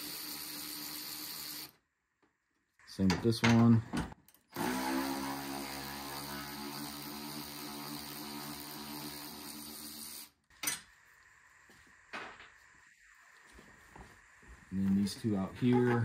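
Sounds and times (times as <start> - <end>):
power tool motor running: 4.5 - 10.3.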